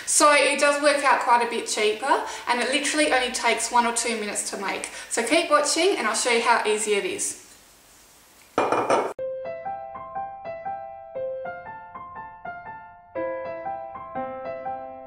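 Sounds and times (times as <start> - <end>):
slow piano melody: 9.1 - 15.0.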